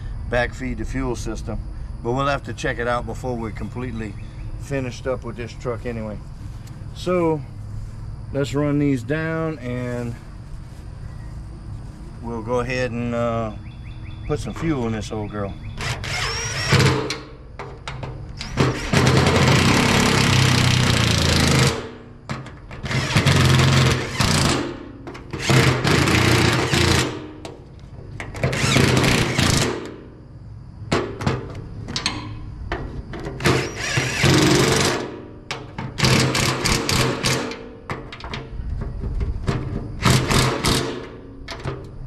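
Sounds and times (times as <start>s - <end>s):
impact wrench bursts: 15.8s - 17.3s, 18.4s - 22.1s, 22.8s - 27.4s, 28.4s - 30.0s, 33.4s - 35.2s, 35.9s - 37.7s, 40.0s - 41.2s.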